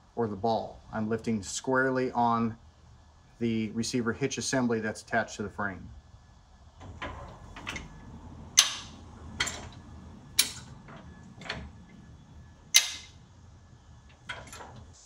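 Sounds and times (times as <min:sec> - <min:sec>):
metal jack clacks: 0:06.8 - 0:13.3.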